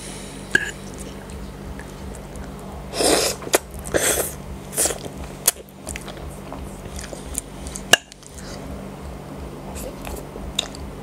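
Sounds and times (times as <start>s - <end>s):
wet chewing and mouth sounds: 0.6s - 10.9s.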